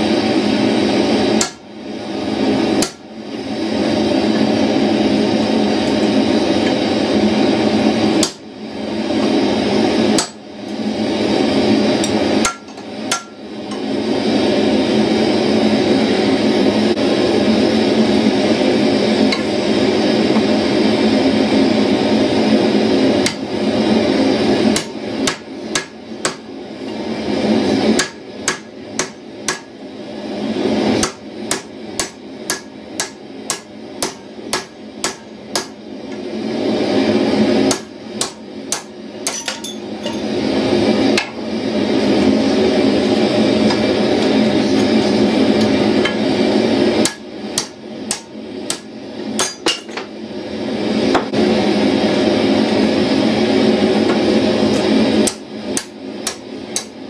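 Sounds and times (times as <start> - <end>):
hammer striking hot steel on anvil: 1.3 - 1.7, 2.8 - 3.1, 8.2 - 8.5, 10.1 - 10.8, 12.0 - 13.9, 23.2 - 23.4, 24.7 - 27.0, 27.9 - 29.8, 31.0 - 36.2, 37.6 - 40.3, 43.6 - 46.3, 47.0 - 50.1, 54.8 - 57.0.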